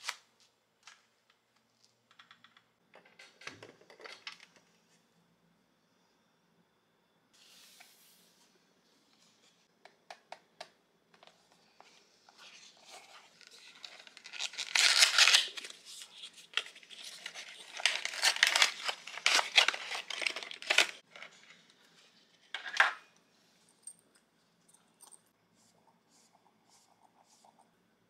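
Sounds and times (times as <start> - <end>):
paper and card rustling and tearing: 12.4 - 21.5.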